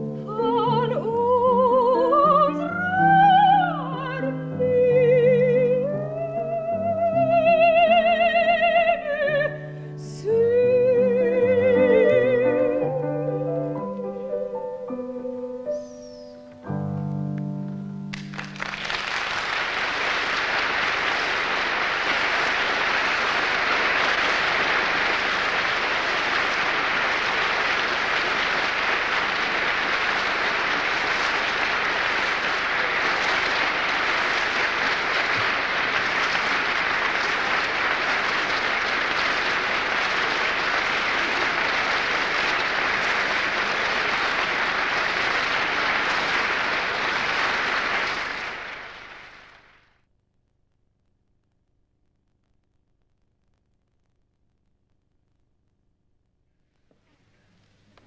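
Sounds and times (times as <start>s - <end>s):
audience applauding: 18.1s - 49.9s.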